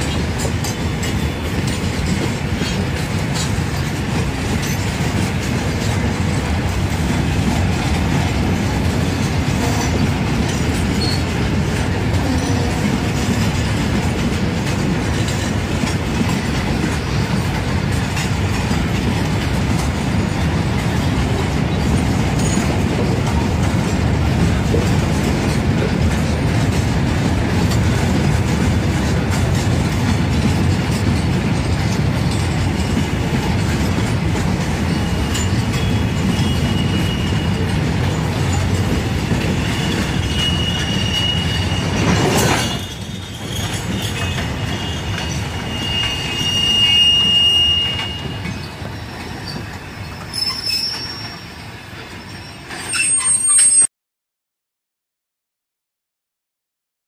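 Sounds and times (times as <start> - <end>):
freight wagons rumbling on rails: 0.0 - 53.9
wheel squeals: 11.0 - 11.3, 34.9 - 38.7, 39.4 - 53.9.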